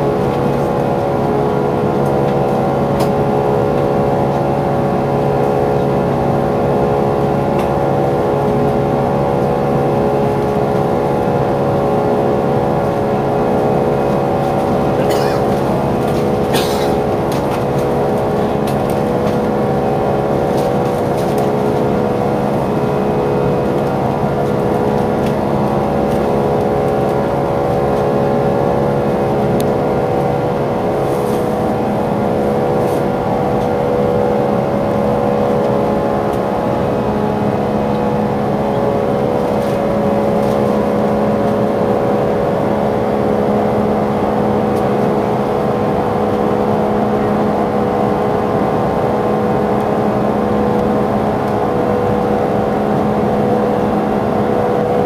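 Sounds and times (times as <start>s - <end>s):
jet engine hum: 0.0s - 55.0s
airplane cabin air rush: 10.2s - 43.0s.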